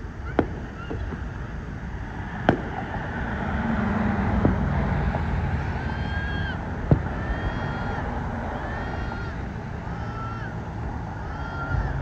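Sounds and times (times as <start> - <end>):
firework bangs: 0.0 - 12.0
low rumble: 0.0 - 12.0
high whistling tone: 5.5 - 12.0.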